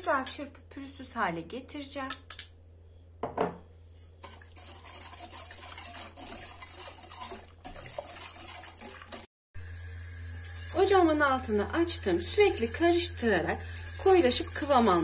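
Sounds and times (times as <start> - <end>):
low electrical hum: 0.0 - 8.8, 9.6 - 15.0
whisk scraping a metal pot: 4.0 - 9.3, 10.4 - 15.0.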